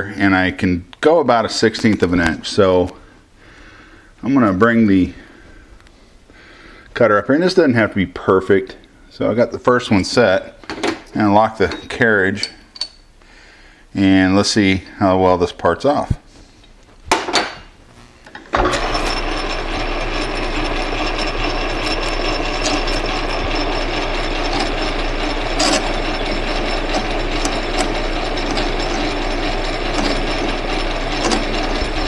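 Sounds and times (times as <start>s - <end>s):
metal lathe running: 18.5s - 32.0s
parting tool cutting brass rod: 18.6s - 32.0s.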